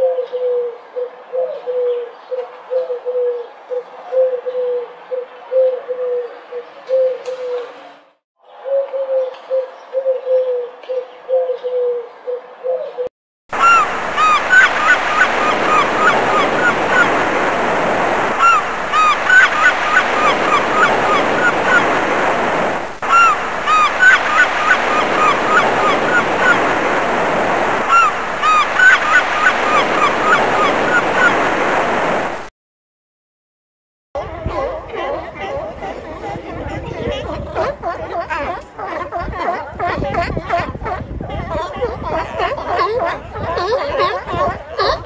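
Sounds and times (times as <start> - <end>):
pigeons cooing: 0.0 - 7.8, 8.5 - 17.1, 34.2 - 45.0
flamingos honking: 13.6 - 31.5.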